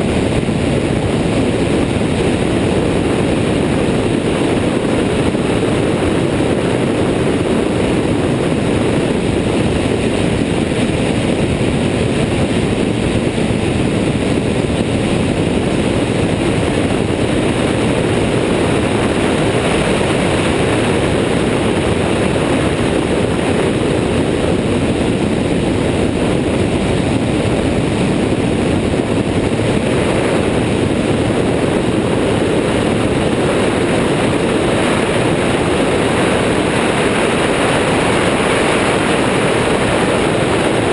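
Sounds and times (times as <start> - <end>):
aircraft engine and propeller: 0.0 - 40.9
wind rushing: 0.0 - 40.9.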